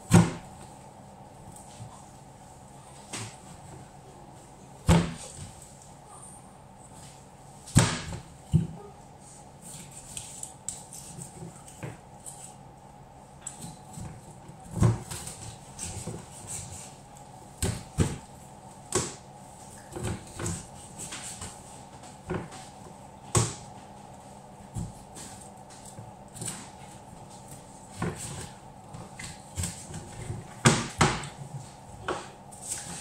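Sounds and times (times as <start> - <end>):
knife chopping on plastic board: 23.3 - 23.6.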